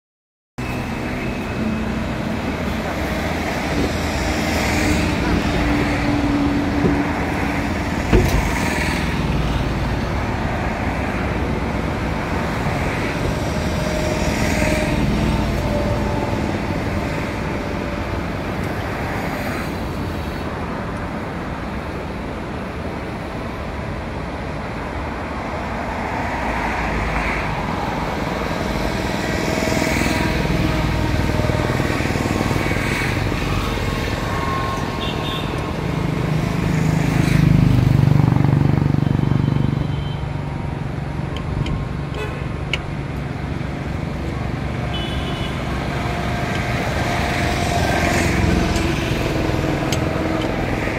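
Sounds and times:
road traffic rushing: 0.6s - 50.9s.

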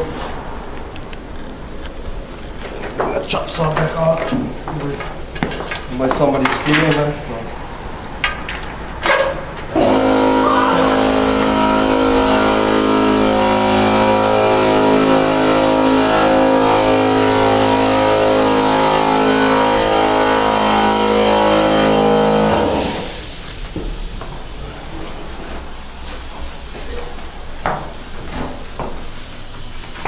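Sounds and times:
air compressor motor running: 9.7s - 23.8s
air release hiss: 22.6s - 23.8s.

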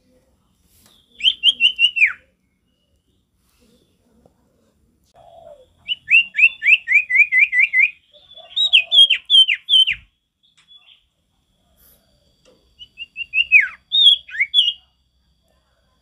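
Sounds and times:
bird whistling song: 0.8s - 3.2s, 5.2s - 11.1s, 12.7s - 14.9s.

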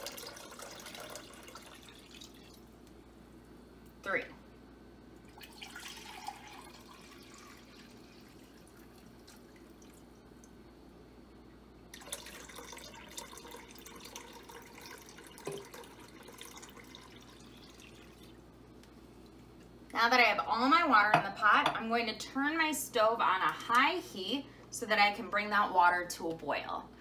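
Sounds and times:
water pouring and splashing: 5.3s - 10.0s, 11.9s - 18.4s.

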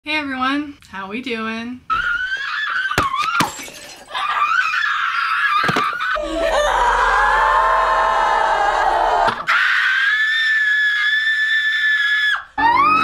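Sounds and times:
women screaming in rage: 1.9s - 13.0s
crashes of things smashed: 3.0s - 4.1s
group of women wailing: 4.1s - 13.0s.

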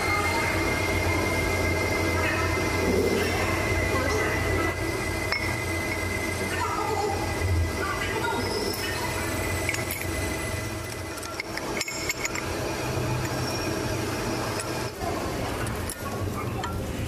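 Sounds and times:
low machine hum: 0.0s - 17.0s
metallic clinks and taps: 11.2s - 12.5s.

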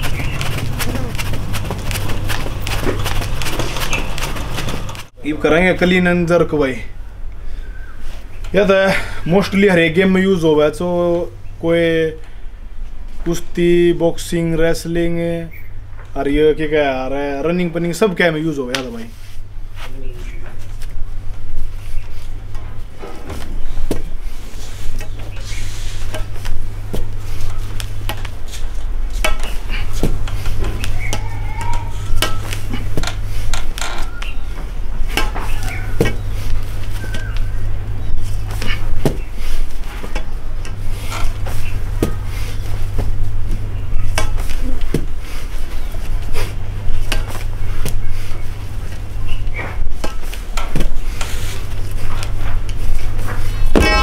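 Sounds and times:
weight plates clanking: 53.8s - 54.0s.

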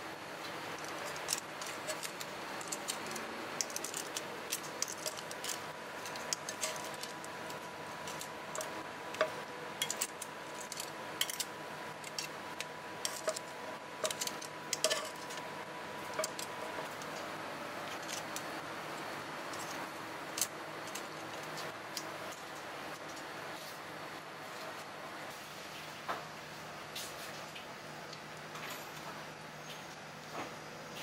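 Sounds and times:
metal tongs clicking on pan: 9.8s - 13.4s, 14.0s - 15.3s.

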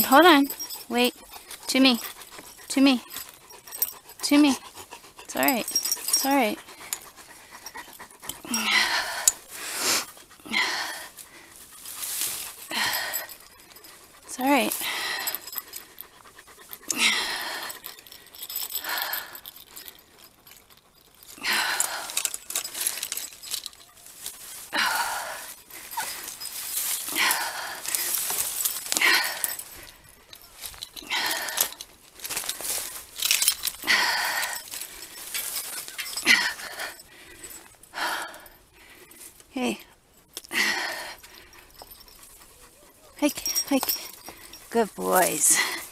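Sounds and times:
heavy effortful breathing: 0.0s - 45.9s.

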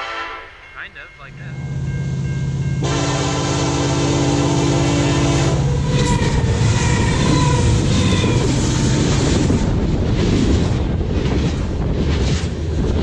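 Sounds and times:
train horn: 0.0s - 0.6s, 2.4s - 9.6s
diesel locomotive engine humming: 0.0s - 13.0s
wheels rumbling on rail: 0.5s - 13.0s.

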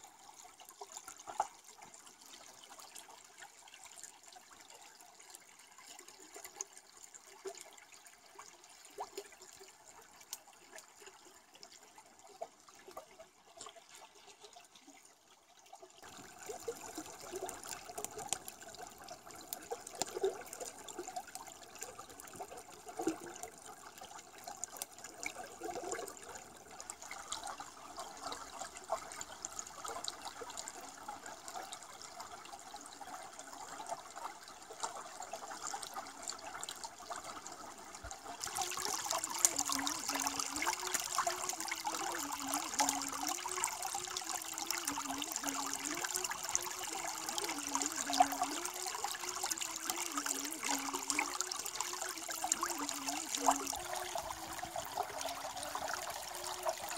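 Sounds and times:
small water splashes: 0.0s - 56.9s
stream water running over rocks: 16.0s - 56.9s.

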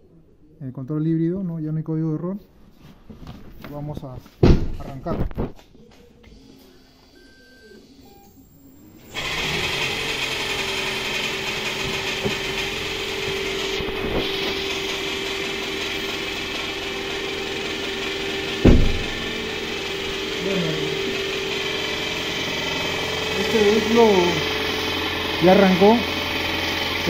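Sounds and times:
thump: 4.4s - 4.9s, 18.6s - 19.2s
car engine starting and humming: 9.0s - 27.0s.

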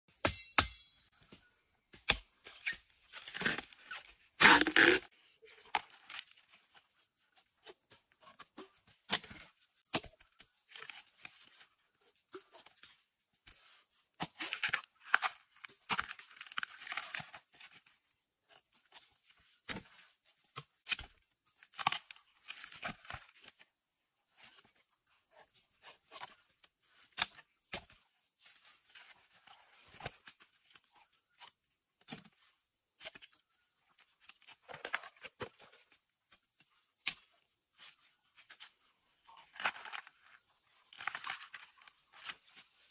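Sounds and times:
knife cutting bamboo shoot: 2.0s - 5.1s
husk sheaths tearing: 2.5s - 5.1s.

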